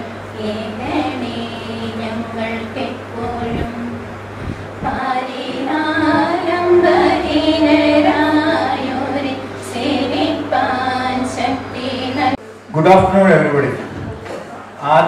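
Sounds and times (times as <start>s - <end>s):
women singing together: 0.0s - 4.2s, 4.8s - 12.4s
faint low hum: 0.0s - 15.0s.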